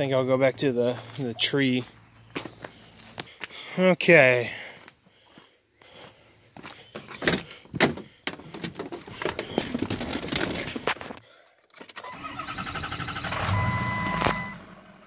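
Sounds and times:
shuffling and knocking: 6.9s - 11.2s.

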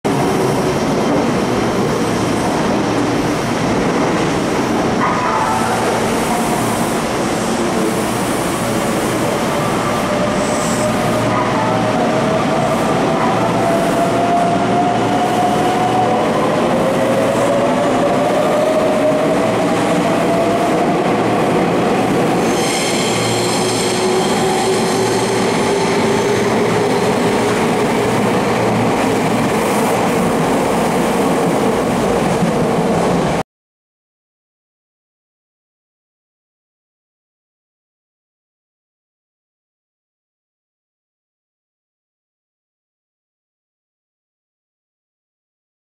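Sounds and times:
train wheels on rails: 0.1s - 33.4s.

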